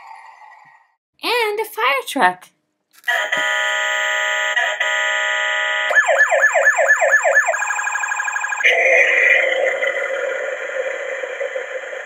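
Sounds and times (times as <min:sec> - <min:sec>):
electronic hissing sound: 0:08.6 - 0:12.0
steady electronic tone: 0:08.6 - 0:12.0.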